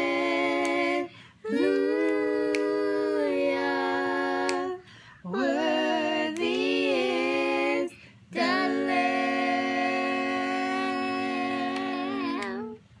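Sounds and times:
woman and children singing a hymn: 0:00.0 - 0:12.8.

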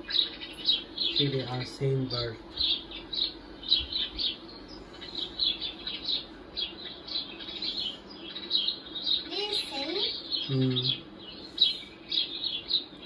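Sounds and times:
sparrows chirping: 0:00.0 - 0:13.0.

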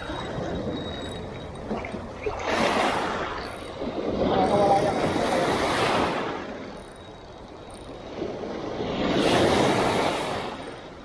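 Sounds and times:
small waves breaking on rocky shore: 0:01.7 - 0:06.7, 0:08.0 - 0:10.6.

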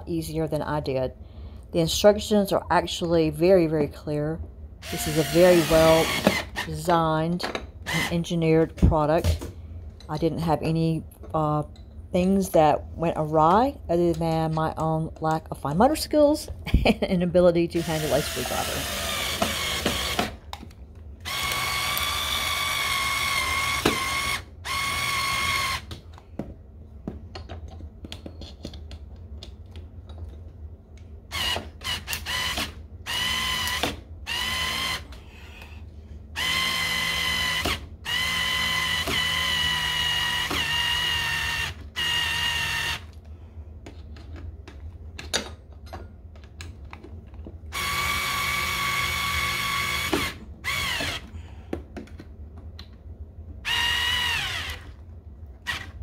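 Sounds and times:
cordless screwdriver motor whine: 0:04.9 - 0:06.6, 0:36.4 - 0:43.1, 0:47.8 - 0:51.2, 0:53.7 - 0:54.9.

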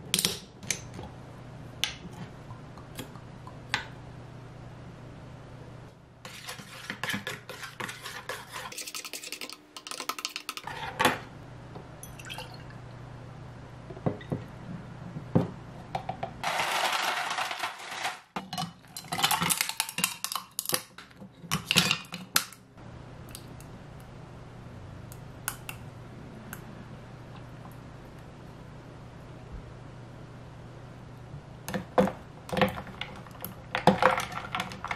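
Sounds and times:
scoop scraping ice cubes: 0:06.3 - 0:11.0, 0:16.4 - 0:18.2
ice cubes clattering into glass: 0:16.4 - 0:18.3.

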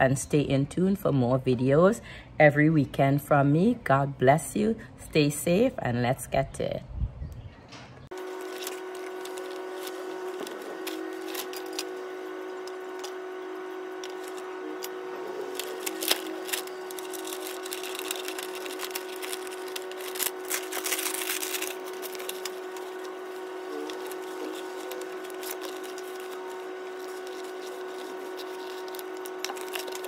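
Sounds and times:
machine hum: 0:07.5 - 0:30.0
wallpaper crinkling and rustling: 0:08.1 - 0:30.0.

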